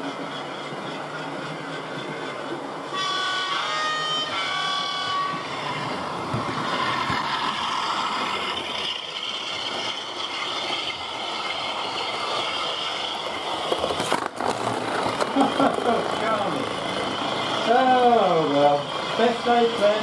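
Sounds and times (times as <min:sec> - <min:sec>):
two-tone horn: 0:02.9 - 0:06.0
diesel engine running: 0:04.4 - 0:20.0.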